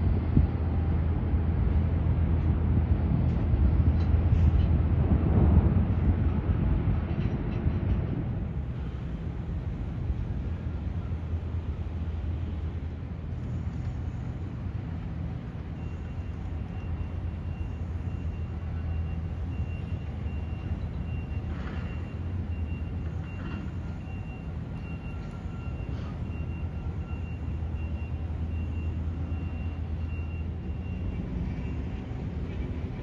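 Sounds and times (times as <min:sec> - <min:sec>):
low engine rumble: 0:00.0 - 0:33.0.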